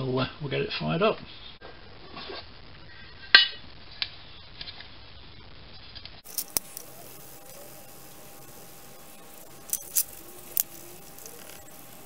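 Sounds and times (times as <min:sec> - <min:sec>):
small metal objects clinking: 0:06.2 - 0:12.0.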